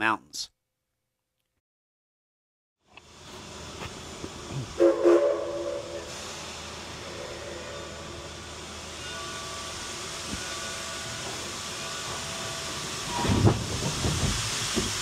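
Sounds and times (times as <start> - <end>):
steam hissing: 3.0 - 15.0
steam locomotive whistle blast: 4.8 - 8.1.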